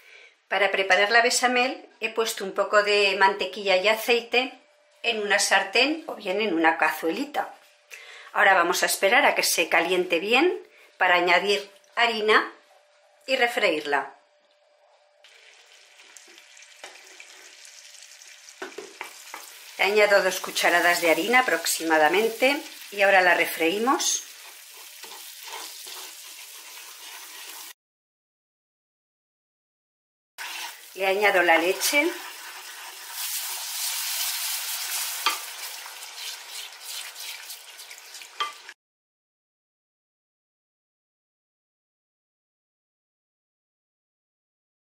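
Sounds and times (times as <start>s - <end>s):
butter and oil sizzling in a pan: 15.2s - 27.8s, 30.4s - 38.8s
wooden spoon knocking on a pan: 18.6s - 19.5s.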